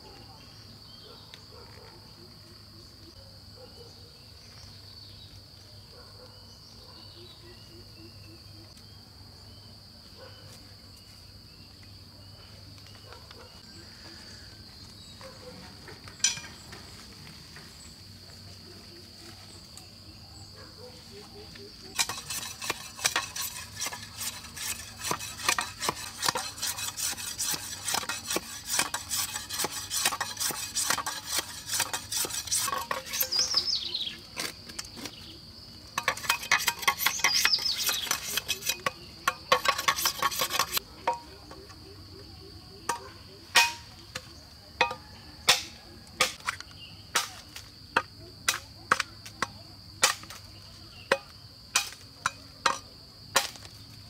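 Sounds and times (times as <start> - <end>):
insects droning: 0.0 - 54.0
clicking and scraping of handwork: 21.9 - 35.2, 36.0 - 41.6.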